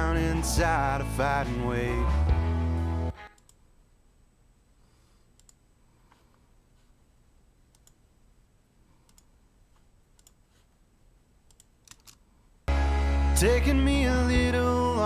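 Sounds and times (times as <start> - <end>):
faint sharp clicks: 5.4 - 5.6, 7.7 - 8.0, 9.0 - 9.3.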